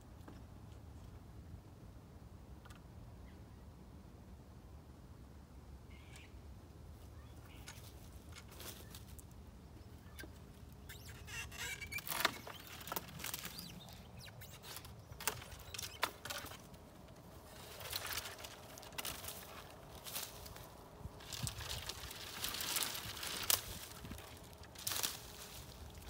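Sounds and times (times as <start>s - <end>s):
twigs brushing and crackling: 7.4s - 9.4s, 10.0s - 26.0s.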